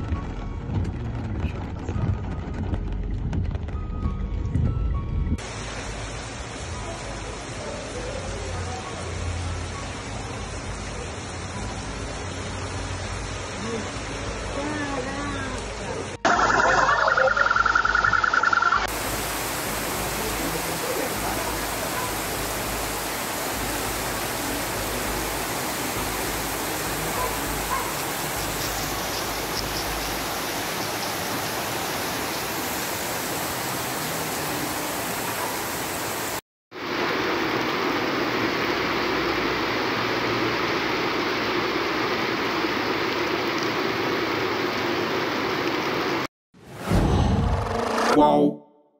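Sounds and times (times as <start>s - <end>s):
floodwater rushing: 5.4s - 46.3s
heavy rain pouring: 5.4s - 46.8s
car alarm tone: 16.3s - 18.9s.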